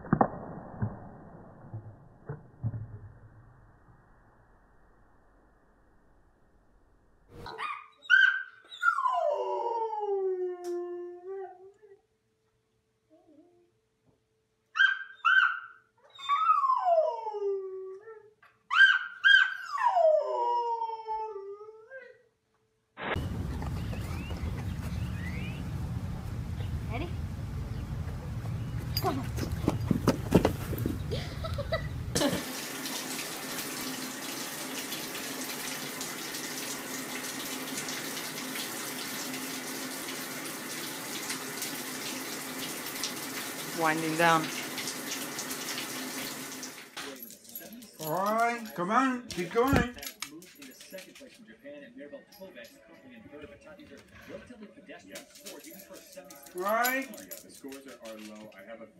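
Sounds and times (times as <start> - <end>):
running water: 29.0 - 47.2.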